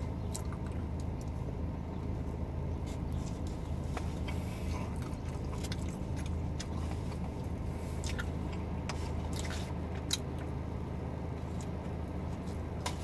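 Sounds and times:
car engine idling: 0.0 - 13.0
man chewing: 2.8 - 10.7.

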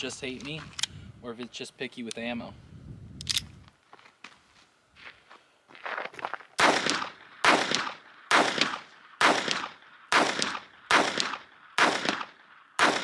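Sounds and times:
pistol shots with echo: 6.6 - 13.0.

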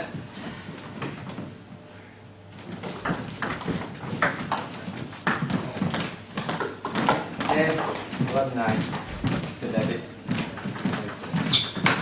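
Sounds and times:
ping pong ball clicking off bats: 3.0 - 8.1, 10.4 - 12.0.

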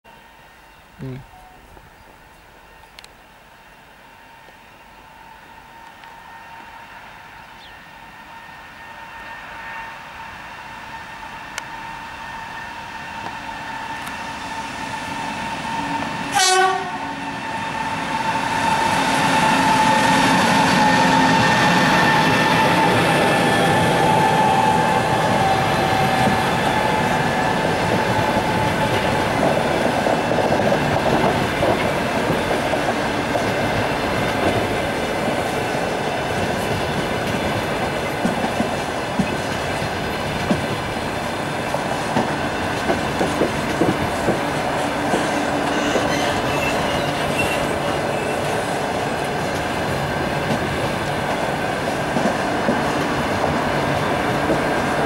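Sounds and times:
train wheels rumbling on track: 1.0 - 55.0
clickety-clack over rail joints: 25.4 - 55.0.

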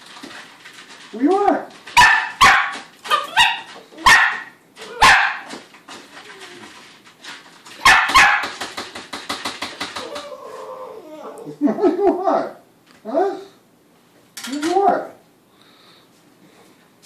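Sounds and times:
puppy barking: 2.0 - 5.5, 7.8 - 8.6.

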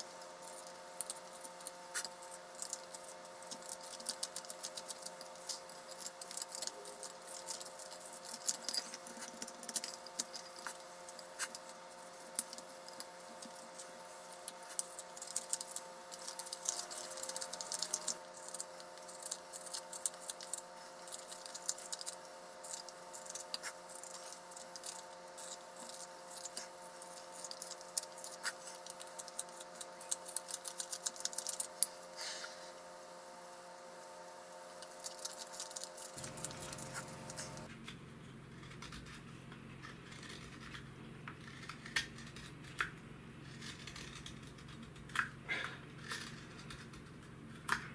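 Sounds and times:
steady multi-tone hum: 0.0 - 47.9
knife scraping wood: 35.3 - 37.7.

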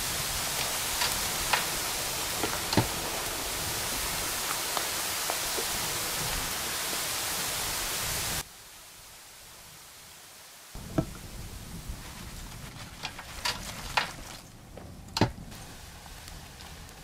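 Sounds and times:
potato slices sizzling in oil: 0.0 - 8.4.

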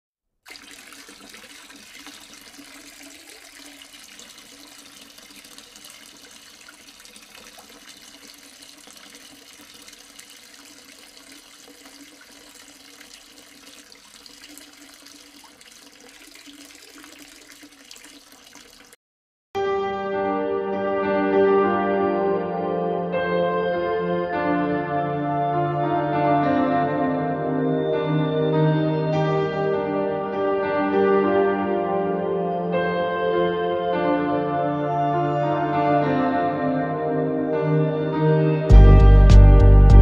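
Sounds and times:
fountain water trickling: 0.4 - 19.0.

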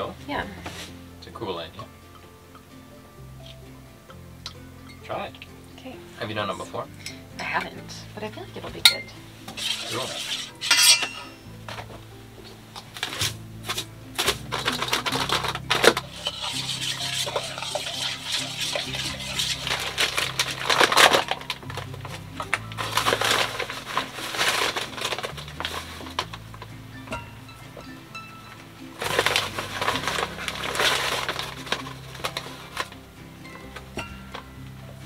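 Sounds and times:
background music with bass line: 0.0 - 35.0
containers clinking against metal bowl: 8.8 - 11.8, 14.2 - 27.8, 29.0 - 33.0
paper bag rustling: 12.9 - 26.7, 29.0 - 33.0.

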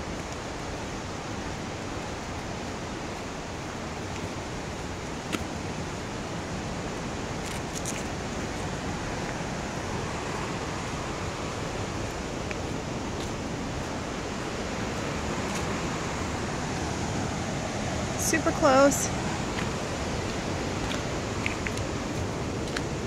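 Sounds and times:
waterfall rushing: 0.2 - 23.0
footsteps on stony trail: 12.0 - 16.0, 19.4 - 23.0.

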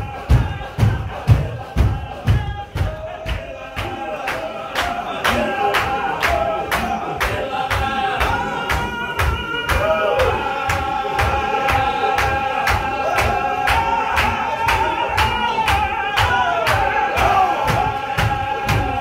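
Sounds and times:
sharp even drum beat: 0.0 - 4.1, 15.2 - 19.0
men chanting in chorus: 0.0 - 19.0.

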